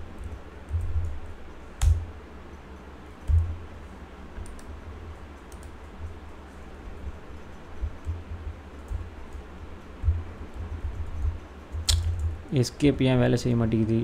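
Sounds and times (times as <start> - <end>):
computer keyboard typing: 4.4 - 4.7, 5.3 - 12.3.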